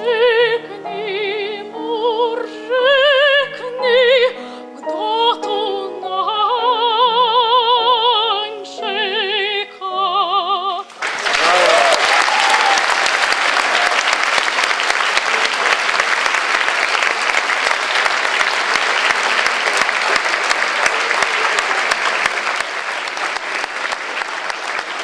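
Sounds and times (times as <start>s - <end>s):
audience applauding: 10.9s - 25.0s.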